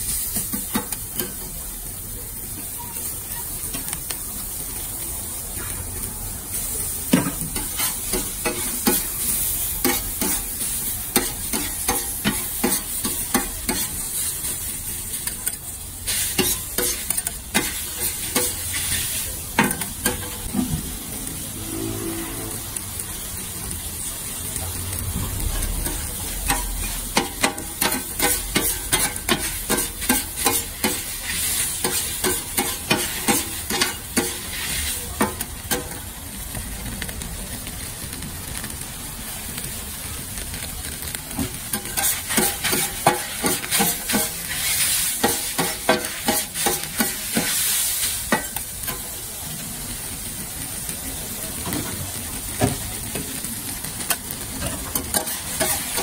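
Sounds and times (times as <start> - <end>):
noodles sizzling on griddle: 0.0 - 56.0
metal spatula scraping griddle: 6.6 - 14.3, 15.4 - 22.8, 25.4 - 36.0, 41.7 - 49.0, 54.0 - 56.0.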